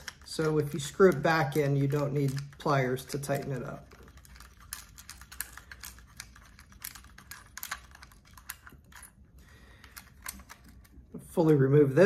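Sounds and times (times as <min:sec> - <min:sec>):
fingers clicking on plastic: 0:00.0 - 0:09.1.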